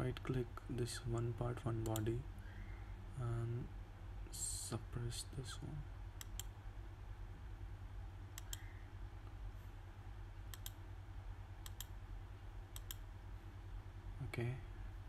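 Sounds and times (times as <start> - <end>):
steady low hum: 0.0 - 15.0
computer mouse clicking: 6.2 - 6.5, 8.4 - 8.7, 10.5 - 10.8, 11.6 - 11.9, 12.7 - 13.0.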